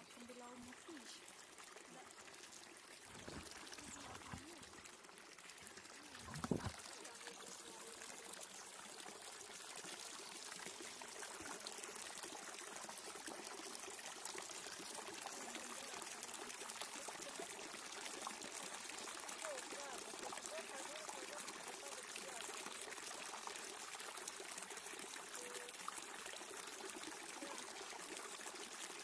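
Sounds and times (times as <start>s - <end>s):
water pouring into wooden trough: 0.0s - 29.0s
brief thump: 6.3s - 6.8s.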